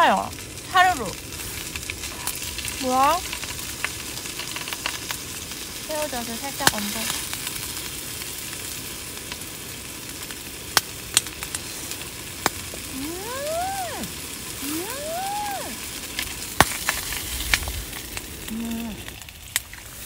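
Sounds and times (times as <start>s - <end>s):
food sizzling in a pan: 0.0s - 20.0s
long rising and falling calls: 12.9s - 16.0s.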